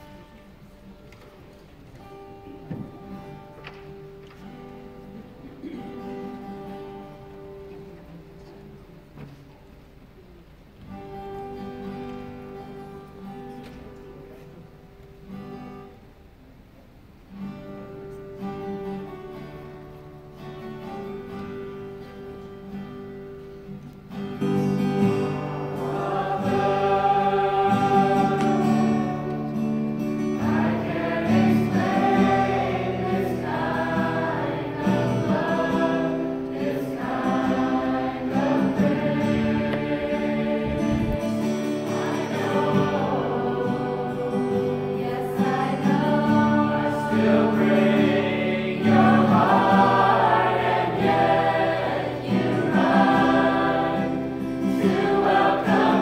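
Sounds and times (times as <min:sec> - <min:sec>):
choir singing: 0:24.1 - 0:56.0.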